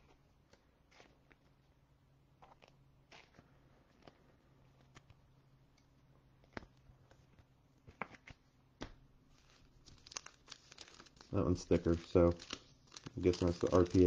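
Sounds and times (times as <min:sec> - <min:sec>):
foil wrapper crinkling: 0:09.3 - 0:14.0.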